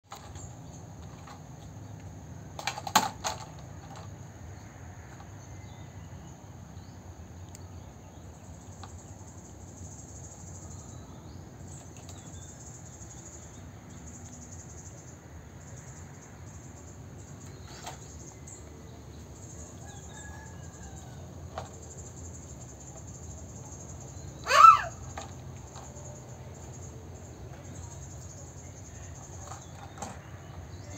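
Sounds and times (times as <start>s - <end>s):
toy cars knocking on wood: 2.6s - 4.1s, 29.1s - 30.9s.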